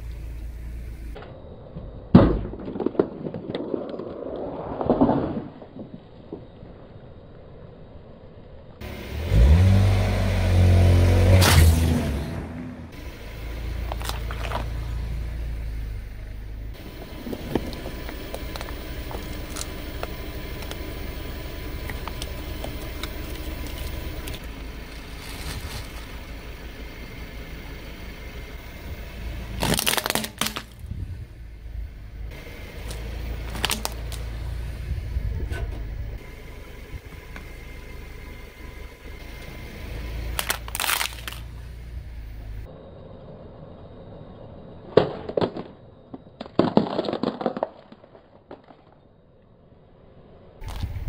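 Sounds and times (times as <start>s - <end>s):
car engine rumble: 0.0s - 51.0s
loud plastic crack: 29.6s - 30.8s, 32.9s - 34.2s, 40.4s - 41.5s, 46.4s - 49.0s
plastic toys crushed under tyre: 29.6s - 30.8s, 33.4s - 34.2s, 40.3s - 41.5s, 45.0s - 49.1s.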